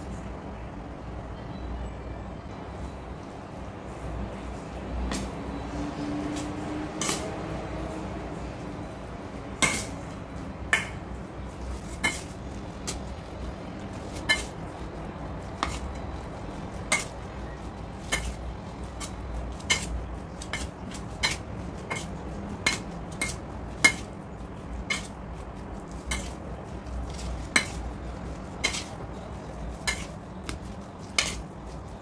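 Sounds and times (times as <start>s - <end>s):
metal spoon clinking in steel bowl: 7.0s - 7.3s, 14.2s - 14.6s, 16.9s - 17.2s, 19.0s - 24.1s, 28.6s - 28.9s, 29.7s - 30.2s, 31.0s - 31.4s.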